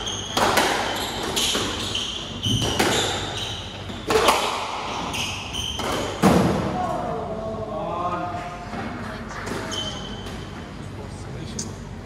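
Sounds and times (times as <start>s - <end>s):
shoes squeaking on wooden floor: 0.0s - 6.2s
squash ball knocking off walls: 5.7s - 6.8s.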